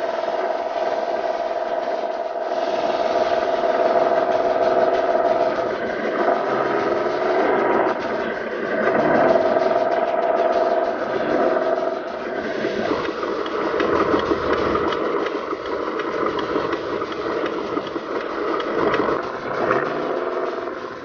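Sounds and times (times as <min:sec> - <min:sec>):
toy truck motor and gears: 0:00.0 - 0:21.0.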